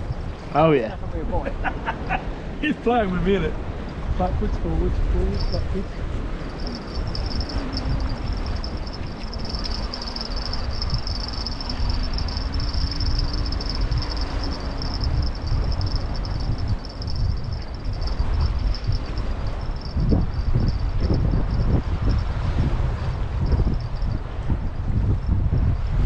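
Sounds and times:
choppy sea washing: 0.0s - 26.0s
wind buffeting microphone: 0.0s - 26.0s
steady high-pitched hiss: 2.6s - 22.2s.

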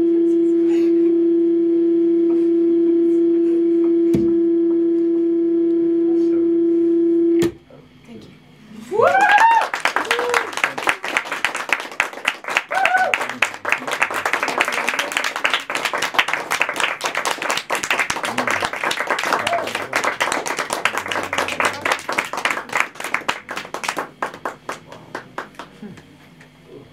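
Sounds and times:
audience clapping: 9.0s - 26.6s.

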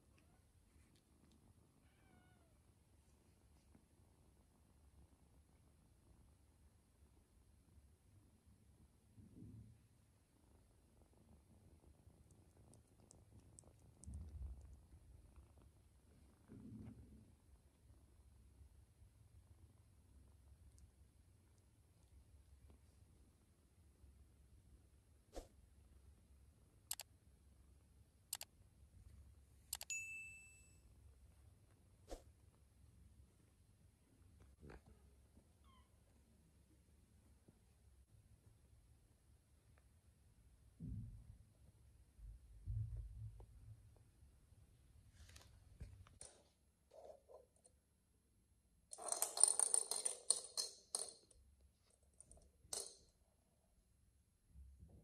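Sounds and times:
bell-like notification ding: 29.9s - 30.7s
cat toy ball rattling: 48.9s - 51.4s.

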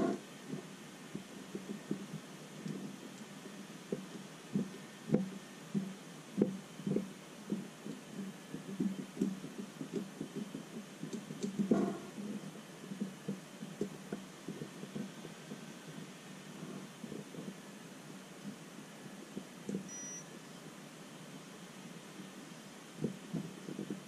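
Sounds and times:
rustle or clatter: 0.0s - 17.8s
low steady hum: 0.0s - 24.0s.

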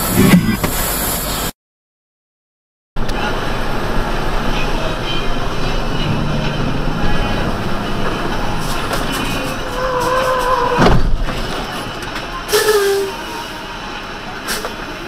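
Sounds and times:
truck engine and road noise: 0.0s - 1.5s, 3.0s - 15.0s
sharp thump of passing trailer: 10.7s - 11.7s.

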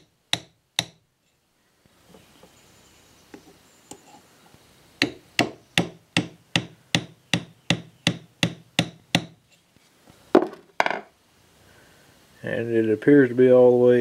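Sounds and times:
hammer tapping metal punch: 0.0s - 1.0s, 5.0s - 9.4s.

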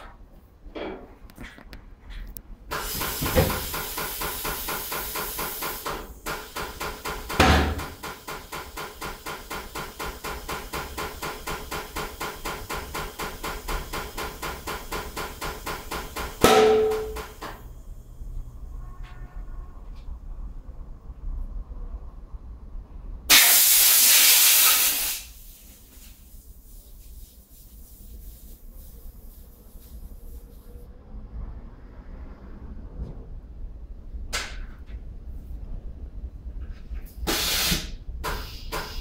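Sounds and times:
tyre changer air hiss and pulsing: 2.7s - 16.4s, 23.3s - 31.4s, 37.0s - 39.0s.

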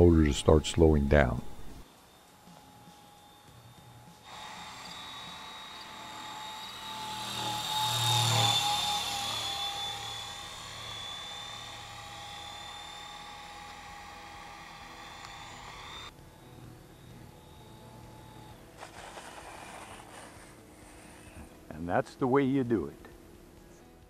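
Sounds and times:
helicopter flying past: 5.0s - 20.2s.

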